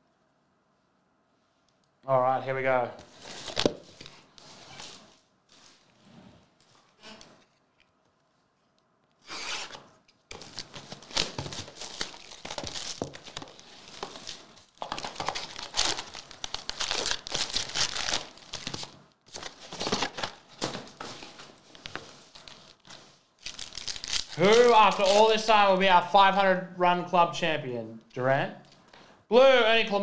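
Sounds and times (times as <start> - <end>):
shrink wrap crinkling and tearing: 9.6 - 20.5, 21.6 - 25.6
foil packs rustling: 9.7 - 25.5.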